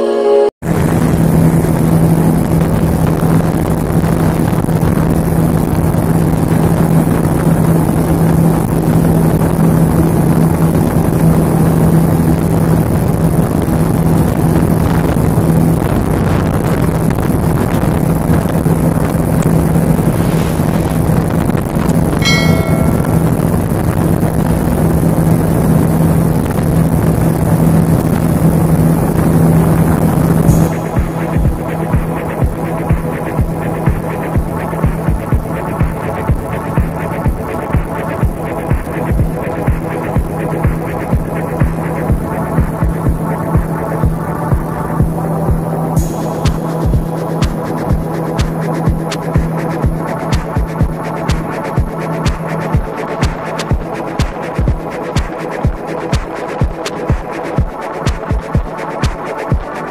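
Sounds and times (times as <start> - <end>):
rush of wake and wind: 15.9 - 23.3
high-pitched ringing tone: 22.2 - 23.6.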